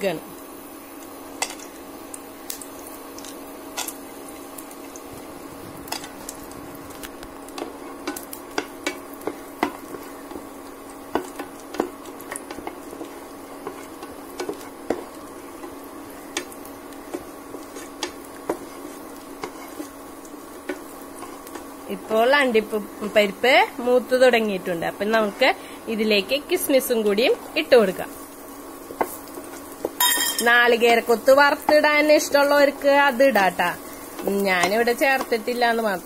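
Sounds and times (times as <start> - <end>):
cooktop hum: 0.0 - 36.0
nuts frying in oil: 0.0 - 36.0
spatula scraping nuts in a pan: 7.0 - 22.1, 28.8 - 35.5
spatula tapping pan: 7.0 - 22.1, 28.8 - 32.3, 34.0 - 35.6.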